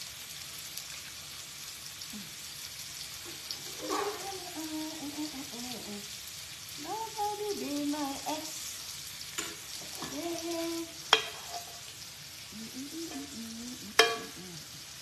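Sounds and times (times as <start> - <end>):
food sizzling on griddle: 0.0 - 15.0
metal spoon scraping pan: 3.6 - 4.3, 11.1 - 11.9, 14.0 - 14.4.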